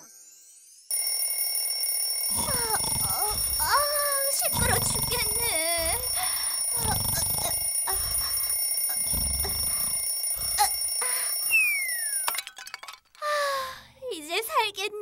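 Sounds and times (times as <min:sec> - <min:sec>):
alarm clock ringing: 0:00.9 - 0:12.4
falling whistle: 0:11.5 - 0:12.3.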